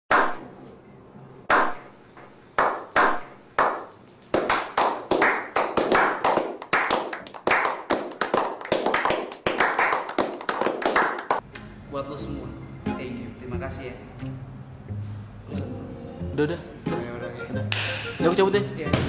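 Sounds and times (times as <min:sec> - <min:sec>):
people clapping: 0:02.6 - 0:11.4.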